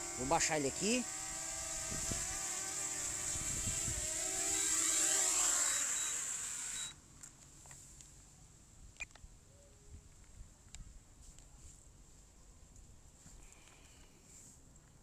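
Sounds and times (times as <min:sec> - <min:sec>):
drone propellers whining: 0:00.0 - 0:07.0.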